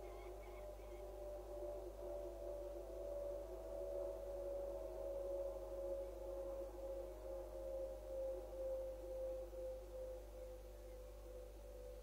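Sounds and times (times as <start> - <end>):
faint steady humming tone: 0.0 - 12.0
low hum: 0.0 - 12.0.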